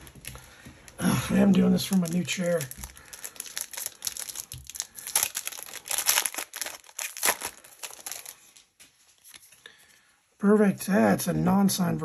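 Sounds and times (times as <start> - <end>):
wrapper crinkling and tearing: 0.0 - 9.5.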